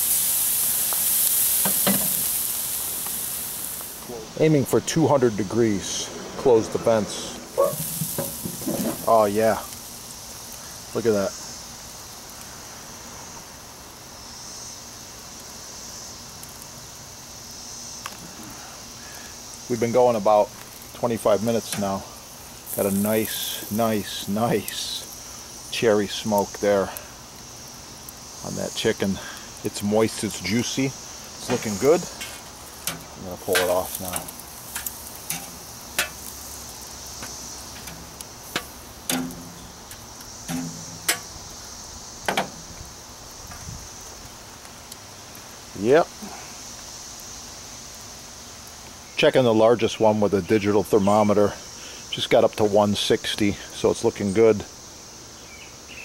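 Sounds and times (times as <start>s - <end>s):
insects chirring: 0.0s - 56.0s
low background hiss: 0.0s - 56.0s
metal tongs clicking on grill: 32.2s - 36.4s, 37.8s - 41.3s.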